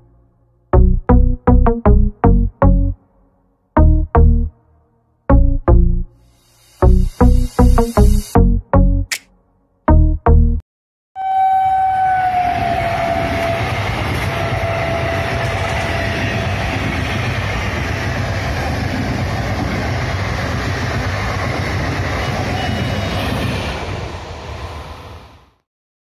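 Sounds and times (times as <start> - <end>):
train horn: 11.2 - 17.0
train coaches rushing and rumbling: 11.6 - 25.6.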